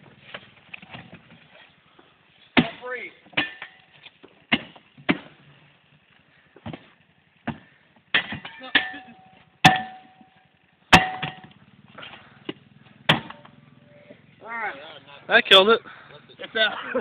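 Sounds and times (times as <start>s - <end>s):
metal shovel clanking: 2.4s - 4.7s, 8.1s - 12.2s.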